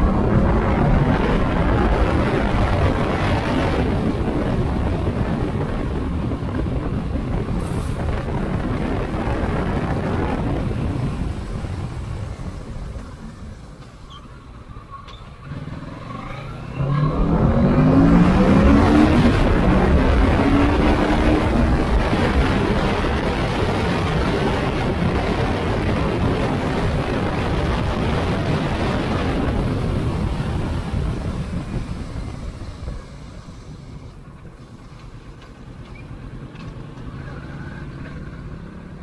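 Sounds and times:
wind and road noise: 0.0 - 39.0
motorcycle engine revving: 15.4 - 34.0.

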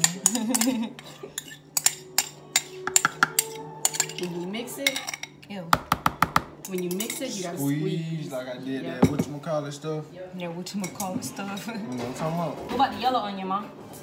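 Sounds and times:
metal spoon clinking on ceramic bowl: 0.0 - 5.4.

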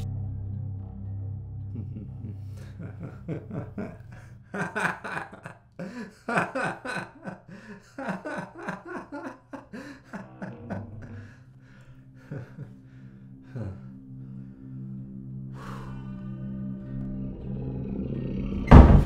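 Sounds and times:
low steady drone: 0.0 - 5.4, 9.7 - 19.0
man laughing: 1.7 - 11.4, 12.2 - 12.8, 13.5 - 13.9.

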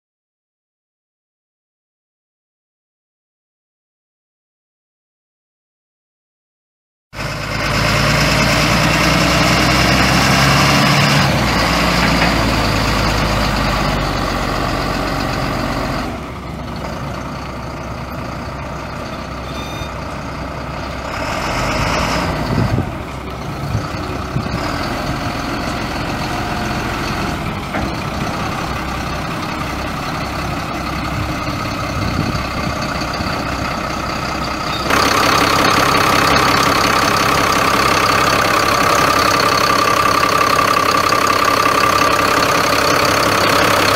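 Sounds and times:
diesel engine idling: 7.2 - 43.9.

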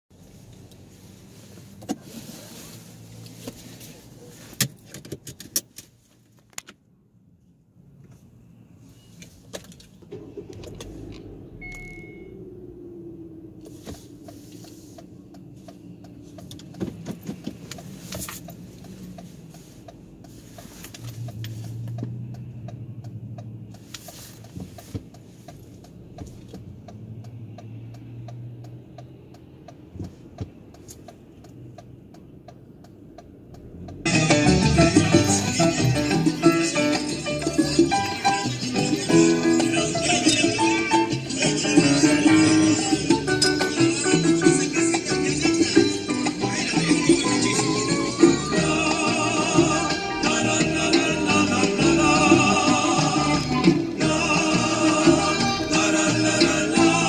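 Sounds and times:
steady light ticking: 14.2 - 16.8.

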